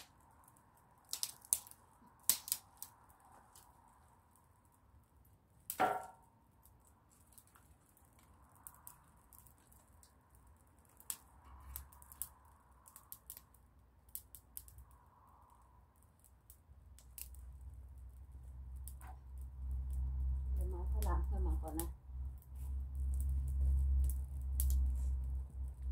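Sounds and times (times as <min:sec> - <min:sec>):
twig fire crackling and popping: 0:00.0 - 0:25.9.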